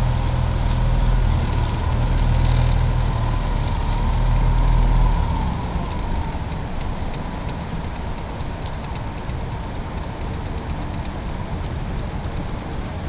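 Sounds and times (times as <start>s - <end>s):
low rumble: 0.0s - 8.2s.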